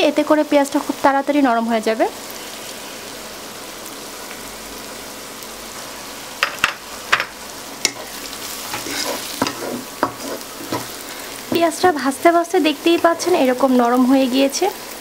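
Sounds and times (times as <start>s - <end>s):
onions sizzling in oil: 0.0s - 15.0s
wooden spatula scraping wok: 7.8s - 12.1s, 12.8s - 13.6s.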